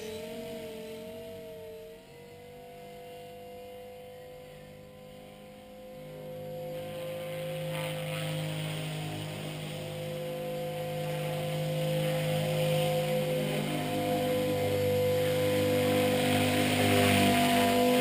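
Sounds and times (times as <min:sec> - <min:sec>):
rc helicopter motor whine: 0:00.0 - 0:18.0.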